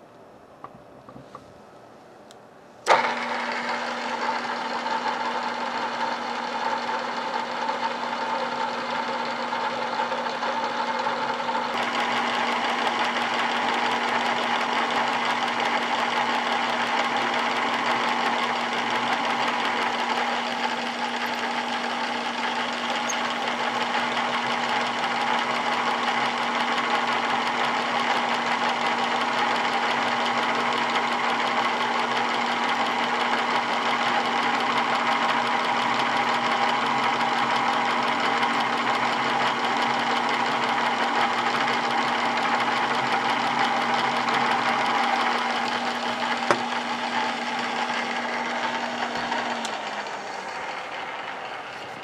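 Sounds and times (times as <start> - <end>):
drill press motor hum: 2.8 - 52.0
drill cutting into metal: 11.8 - 51.5.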